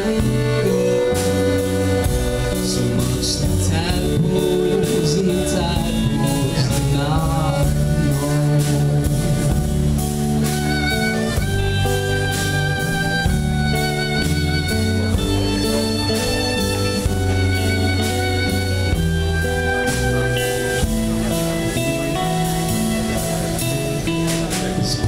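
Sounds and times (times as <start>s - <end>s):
man singing: 0.0s - 10.3s, 20.7s - 25.0s
drum kit: 0.0s - 25.0s
electric guitar: 0.0s - 25.0s
fiddle: 0.0s - 25.0s
upright bass: 0.0s - 25.0s.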